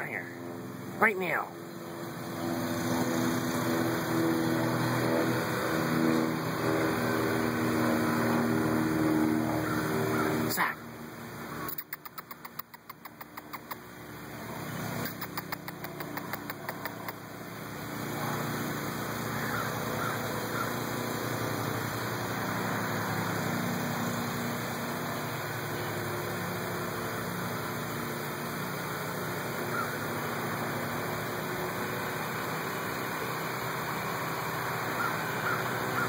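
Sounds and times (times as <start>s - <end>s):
engine-like hum with hiss: 0.0s - 36.0s
rapid clicks: 11.7s - 13.9s, 15.0s - 17.2s.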